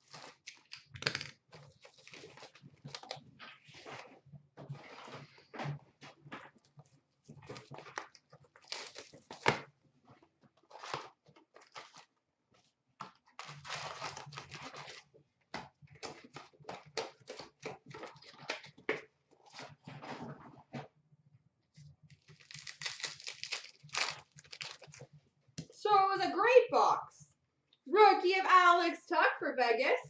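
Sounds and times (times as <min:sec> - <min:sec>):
wrapper crinkling and rustling: 0:00.0 - 0:04.2, 0:07.3 - 0:09.6, 0:10.7 - 0:12.1, 0:13.2 - 0:15.1, 0:22.1 - 0:25.1
cardboard box tearing: 0:13.4 - 0:15.0, 0:22.3 - 0:25.0.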